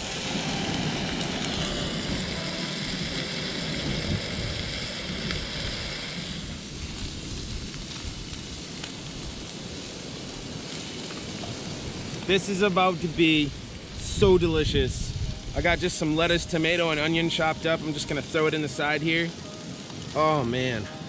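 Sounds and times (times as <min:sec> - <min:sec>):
wind on microphone: 0:00.0 - 0:08.6, 0:13.3 - 0:17.0
fish sizzling in a frying pan: 0:00.0 - 0:21.0.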